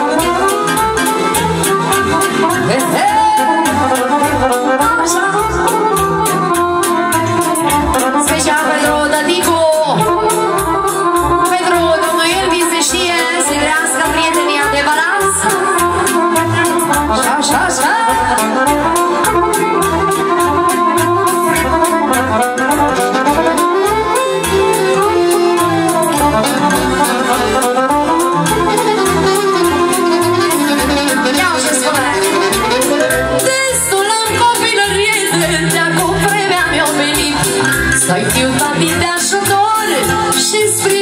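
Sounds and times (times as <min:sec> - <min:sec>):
loud dance music: 0:00.0 - 0:05.4, 0:16.4 - 0:39.1.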